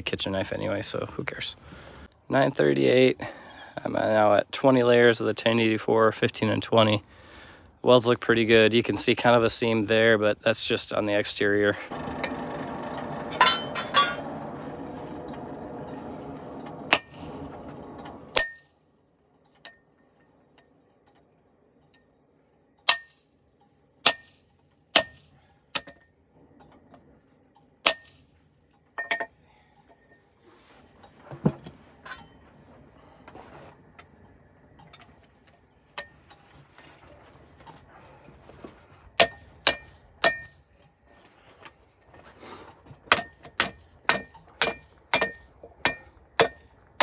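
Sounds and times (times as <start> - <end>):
hammer striking metal: 13.3 - 14.3, 16.9 - 17.3, 18.3 - 18.7, 22.9 - 23.2, 24.0 - 24.4, 25.0 - 26.0, 27.8 - 28.2, 39.2 - 40.6, 43.1 - 46.7.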